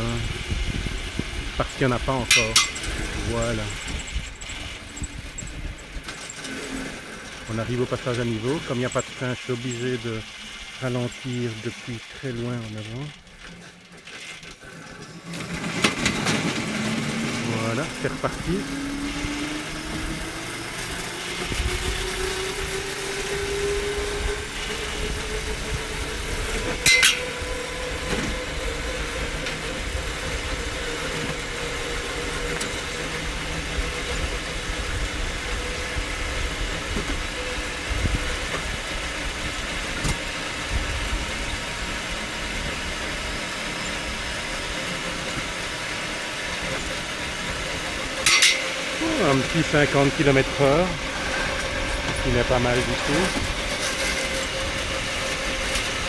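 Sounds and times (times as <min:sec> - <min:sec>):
rail cart motor whine: 0:00.0 - 0:56.0
wheels rumbling on steel rails: 0:00.0 - 0:56.0
sharp clack: 0:02.3 - 0:02.9, 0:26.8 - 0:27.3, 0:48.2 - 0:48.8.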